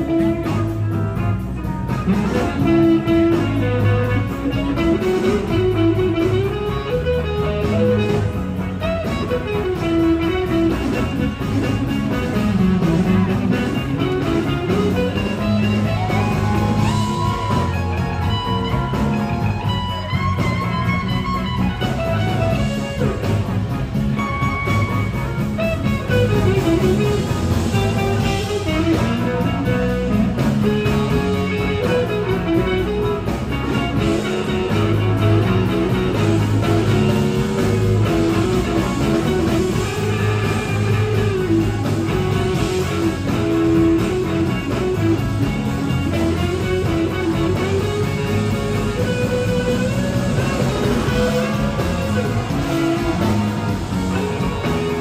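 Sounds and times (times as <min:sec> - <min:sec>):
electric guitars: 0:00.0 - 0:55.0
live blues rock band: 0:00.0 - 0:55.0.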